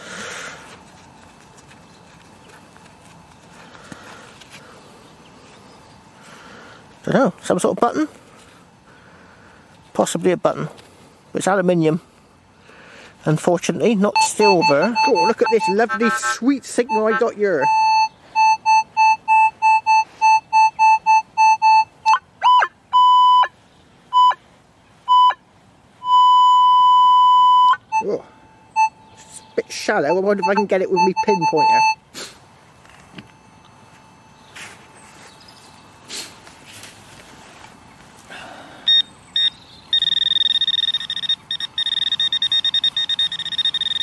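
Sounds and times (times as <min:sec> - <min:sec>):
metal detector beeps and tones: 0:14.1 - 0:23.5, 0:24.1 - 0:24.4, 0:25.1 - 0:25.4, 0:26.0 - 0:32.0, 0:32.9 - 0:35.2, 0:38.9 - 0:44.0.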